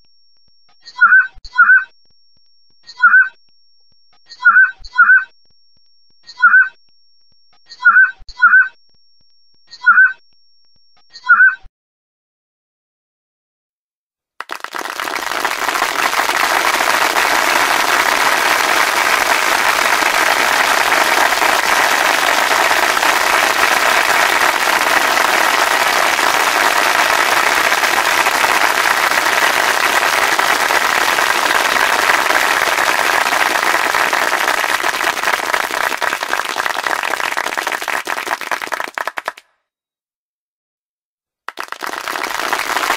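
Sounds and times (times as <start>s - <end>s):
crowd applause: 14.4s - 39.4s, 41.5s - 42.9s.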